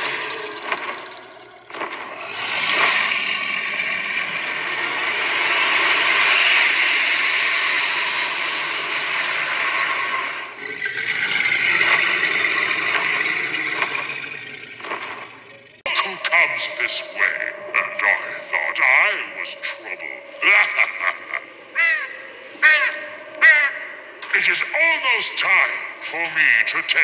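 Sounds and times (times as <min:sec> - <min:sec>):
mechanical dragon roaring: 0:00.0 - 0:21.1
loud fog hiss: 0:02.5 - 0:14.8.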